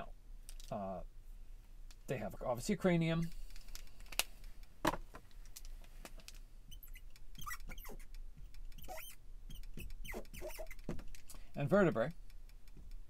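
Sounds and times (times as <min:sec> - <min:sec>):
marker squeaking on glass: 0:06.7 - 0:11.0.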